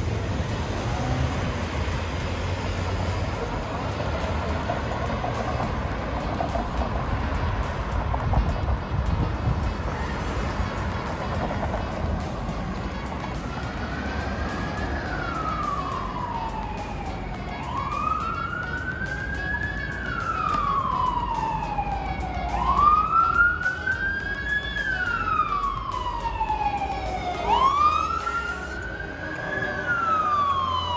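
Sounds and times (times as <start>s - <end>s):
siren wailing: 13.1s - 30.9s.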